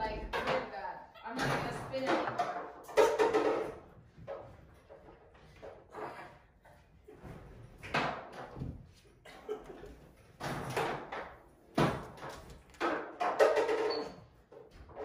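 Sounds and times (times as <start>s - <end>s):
knocks and thumps on pool table: 1.4s - 6.1s, 7.2s - 9.0s, 10.0s - 15.0s.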